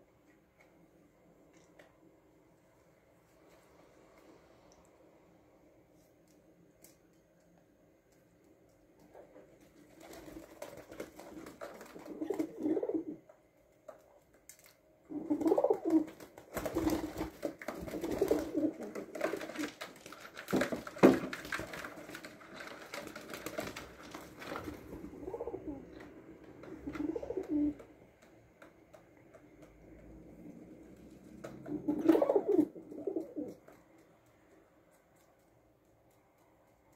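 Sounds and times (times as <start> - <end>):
pigeons cooing: 11.8 - 13.2, 15.1 - 19.7, 24.9 - 27.9, 31.4 - 33.6.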